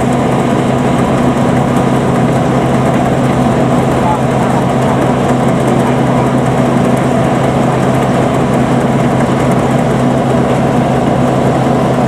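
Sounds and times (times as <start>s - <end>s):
combine harvester humming: 0.0s - 12.0s.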